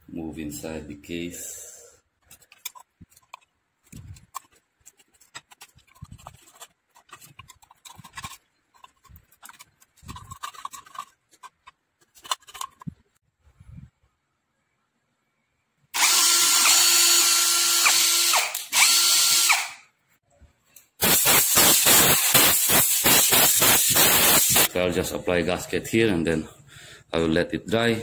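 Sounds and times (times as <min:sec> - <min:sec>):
blade scraping plastic: 0:02.2 - 0:13.0.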